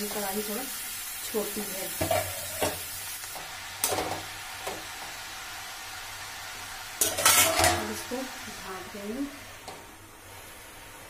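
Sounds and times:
vegetables sizzling in oil: 0.0 - 11.0
spatula scraping pan: 2.0 - 2.8, 7.0 - 8.0.

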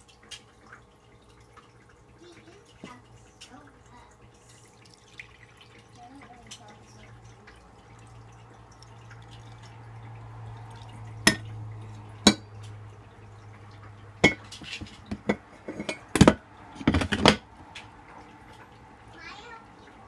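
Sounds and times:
glass carafe clinking: 11.2 - 11.4, 12.2 - 12.5, 14.2 - 17.5.

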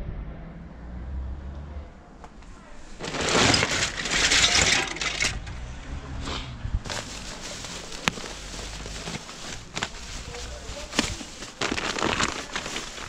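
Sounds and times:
rubbish rustling and crackling: 2.4 - 13.0.

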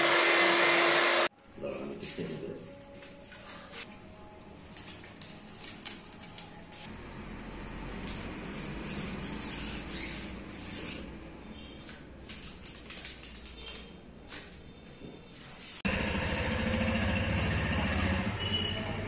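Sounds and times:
motorcycle engine running: 15.9 - 19.0.

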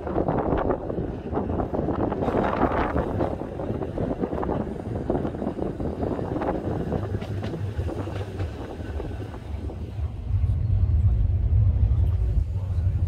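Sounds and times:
tram running noise: 0.0 - 13.0
wind buffeting microphone: 0.0 - 13.0
low rumble: 8.7 - 13.0.

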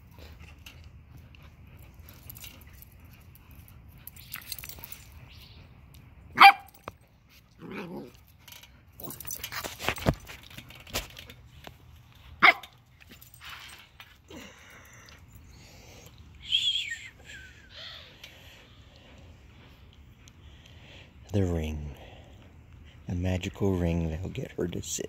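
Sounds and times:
small dog barking: 6.4 - 6.7, 12.4 - 12.7
scuffling knocks and clicks: 9.0 - 14.1.

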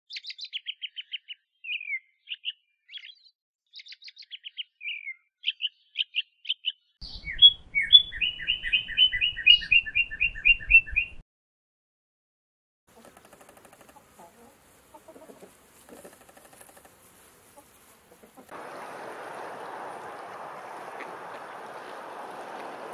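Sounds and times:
robin chirping and singing: 0.1 - 11.2.

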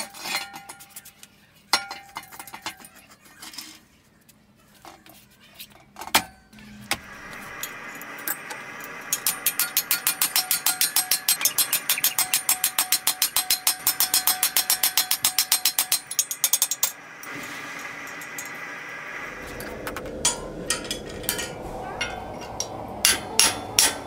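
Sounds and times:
ringing hammer blows on steel: 20.2 - 24.0.

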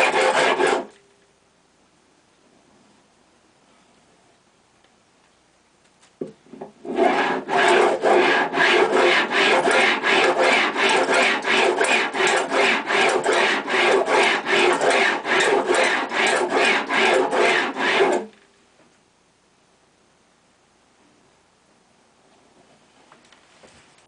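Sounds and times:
file rasping on metal: 0.0 - 0.9, 6.8 - 18.3.

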